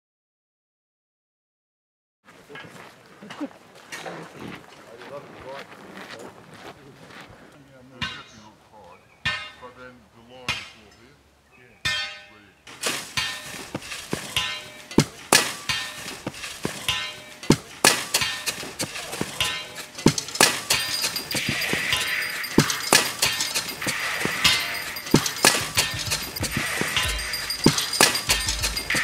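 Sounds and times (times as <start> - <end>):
shovels striking dirt and rock: 11.9 - 29.0.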